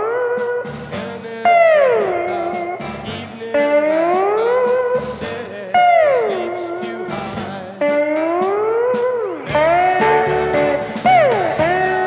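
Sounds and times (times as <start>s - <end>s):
electric slide guitar: 0.0s - 12.0s
faint backing instruments: 0.0s - 12.0s.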